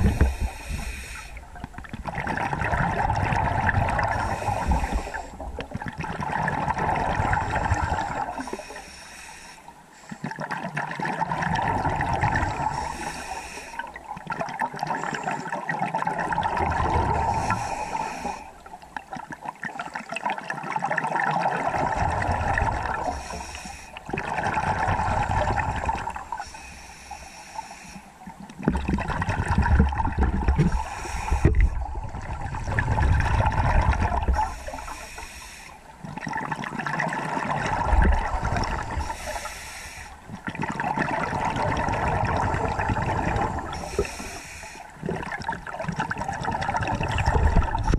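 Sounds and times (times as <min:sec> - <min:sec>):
gurgling bubble bursts: 0:00.0 - 0:00.6, 0:01.6 - 0:08.5, 0:10.4 - 0:12.9, 0:15.7 - 0:17.6, 0:19.8 - 0:23.1, 0:24.1 - 0:26.3, 0:28.6 - 0:34.6, 0:36.0 - 0:39.2, 0:40.3 - 0:44.3, 0:45.0 - 0:47.9
diver breathing through regulator: 0:00.0 - 0:01.5, 0:04.0 - 0:05.5, 0:07.3 - 0:10.4, 0:12.5 - 0:14.0, 0:17.0 - 0:18.7, 0:21.9 - 0:28.2, 0:30.4 - 0:36.0, 0:37.8 - 0:40.3, 0:42.0 - 0:45.2.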